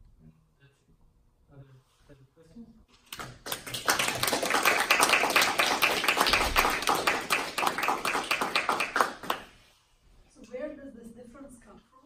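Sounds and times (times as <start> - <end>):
audience applauding: 3.3 - 9.5.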